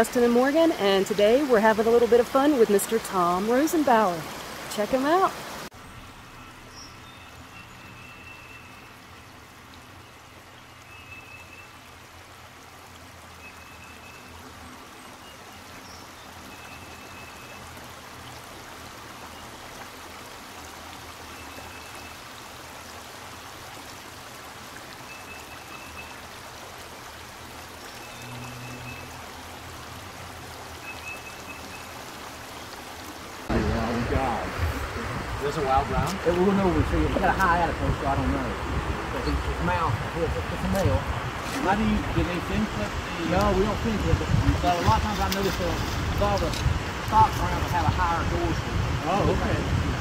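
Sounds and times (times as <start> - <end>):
stream water rushing: 0.0 - 50.0.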